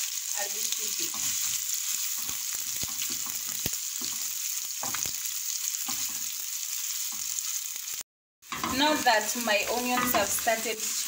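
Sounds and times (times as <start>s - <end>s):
onions sizzling in oil: 0.0s - 11.0s
wooden spoon scraping a pan: 1.0s - 6.4s, 8.5s - 11.0s.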